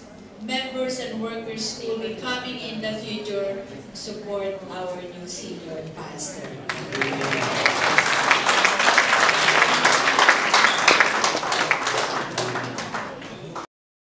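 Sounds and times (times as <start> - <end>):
congregation applauding: 6.5 - 13.7.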